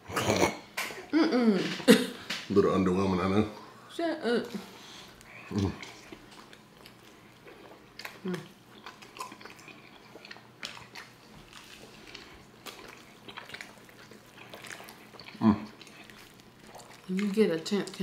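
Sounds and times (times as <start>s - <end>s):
wet chewing mouth clicks: 5.2s - 18.0s.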